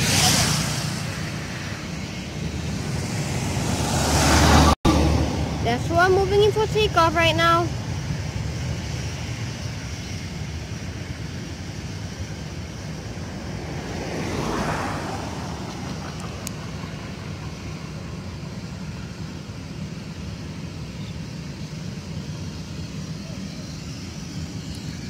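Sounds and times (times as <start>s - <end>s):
steady low rumble: 0.0s - 25.0s
car passing close by: 2.7s - 5.7s, 13.1s - 17.5s.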